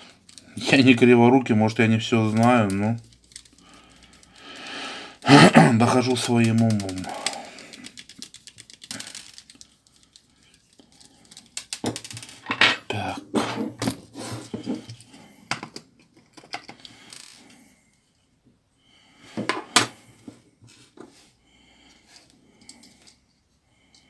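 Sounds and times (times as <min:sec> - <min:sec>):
screws set down on tabletop: 0:11.8 - 0:14.8, 0:19.4 - 0:20.0.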